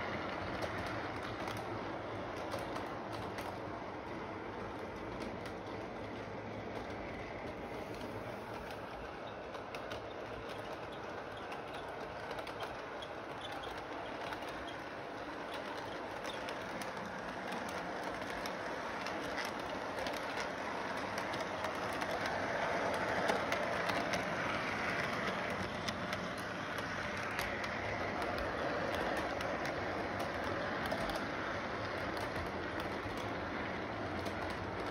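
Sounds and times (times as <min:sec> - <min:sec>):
model train rumbling: 0:00.0 - 0:34.9
wheels clicking over rail joints: 0:00.0 - 0:34.9.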